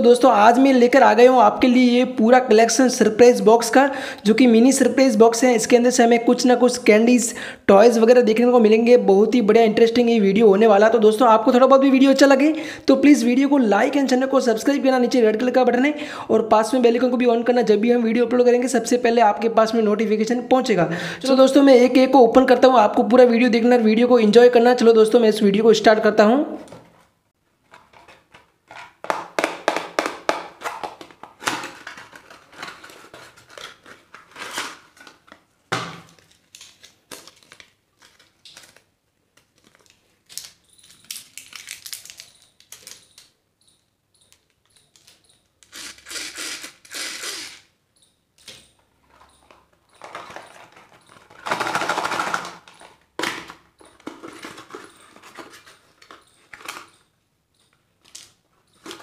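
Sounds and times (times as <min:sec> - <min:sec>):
plastic wrappers crinkling: 0:27.6 - 0:43.4, 0:49.0 - 0:57.1.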